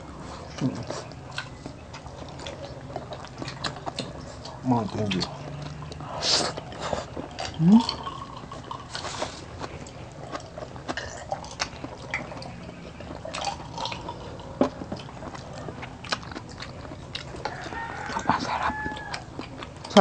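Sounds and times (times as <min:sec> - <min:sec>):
person gulping a drink: 0:06.6 - 0:09.1, 0:13.2 - 0:15.9.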